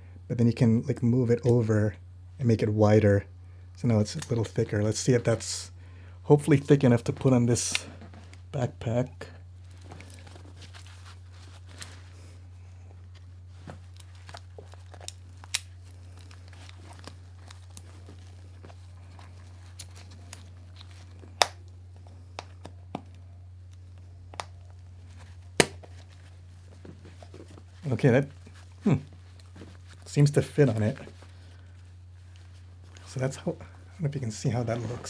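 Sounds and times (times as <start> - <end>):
strap rubbing: 9.6 - 35.0.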